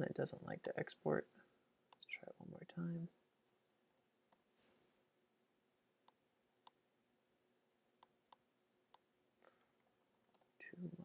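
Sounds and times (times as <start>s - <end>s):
computer mouse clicks: 8.0s - 10.6s.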